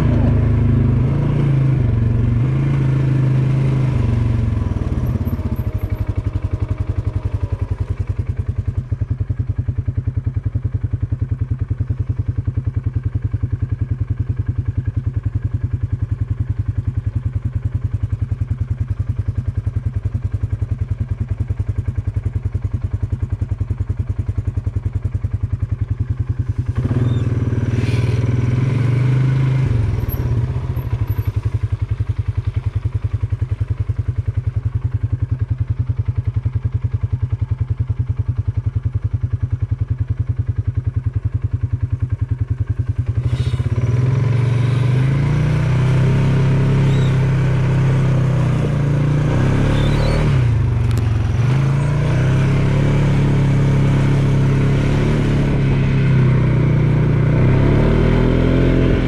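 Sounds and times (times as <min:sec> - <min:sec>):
atv engine revving: 0:00.0 - 0:09.0, 0:26.0 - 0:35.0, 0:42.5 - 0:59.0.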